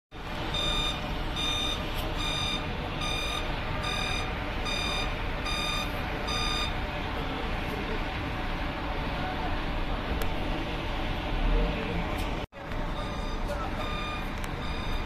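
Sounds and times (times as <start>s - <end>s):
reversing alarm beeping: 0.4s - 6.8s, 12.9s - 15.0s.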